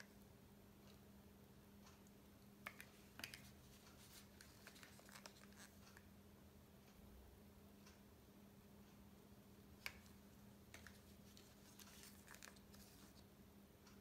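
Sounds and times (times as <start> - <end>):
faint room hum: 0.0 - 14.0
plastic cups clicking and rustling: 9.8 - 13.2.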